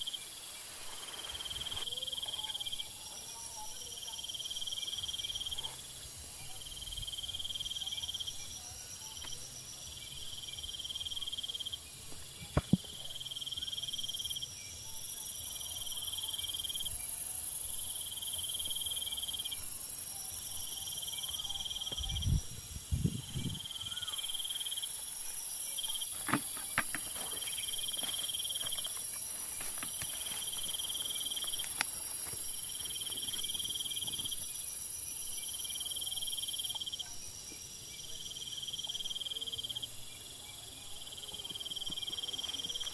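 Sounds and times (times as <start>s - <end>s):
steady high hiss: 0.0s - 3.1s, 3.8s - 40.4s
insect shrill chirping: 13.1s - 37.0s
thumps and rustles: 26.1s - 30.8s.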